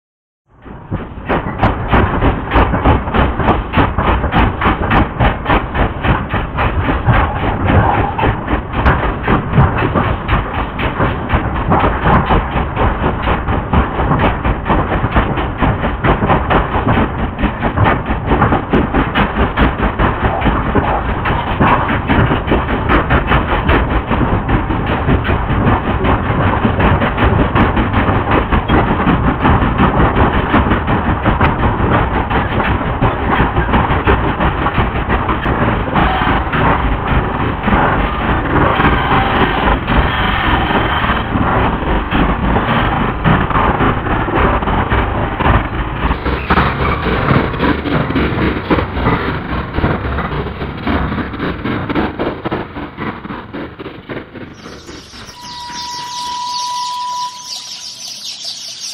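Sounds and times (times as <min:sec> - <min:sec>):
dense rumbling noise: 0:00.5 - 0:58.9
low hum: 0:54.4 - 0:58.9.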